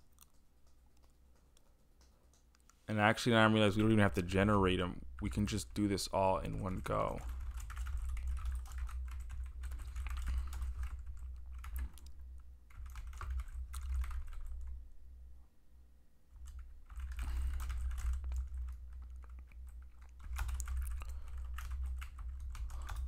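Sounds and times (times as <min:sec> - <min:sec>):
typing on computer keyboard: 0:00.0 - 0:02.7, 0:06.5 - 0:14.8, 0:16.4 - 0:23.0.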